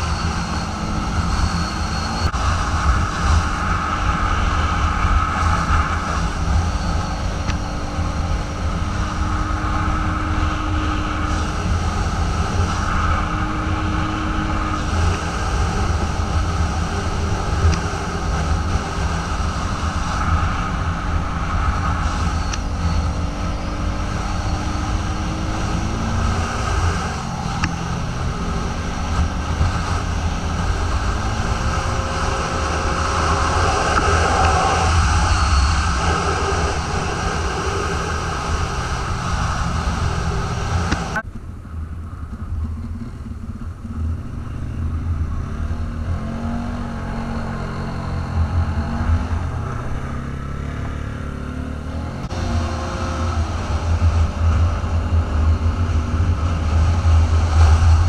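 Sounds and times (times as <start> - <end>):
atv engine running: 0.0 - 58.0
wind rumble on microphone: 0.0 - 58.0.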